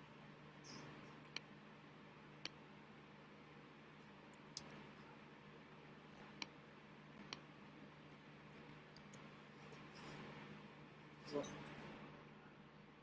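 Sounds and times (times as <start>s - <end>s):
low room hum: 0.0s - 13.0s
sharp clicks and smacks: 0.7s - 1.5s, 2.2s - 2.6s, 4.3s - 4.9s, 6.1s - 6.6s, 7.2s - 7.5s.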